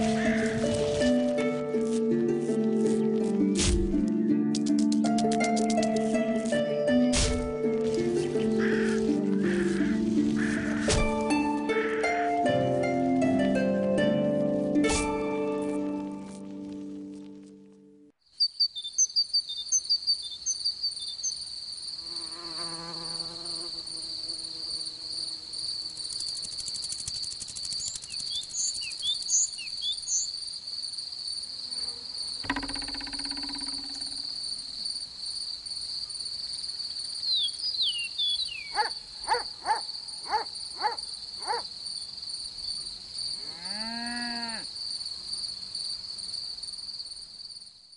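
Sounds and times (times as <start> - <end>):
crickets trilling: 18.4 - 47.9.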